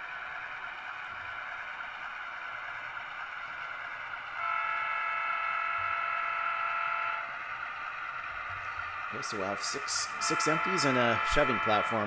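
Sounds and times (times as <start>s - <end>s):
model locomotive horn chord: 4.4s - 7.6s, 9.1s - 12.0s.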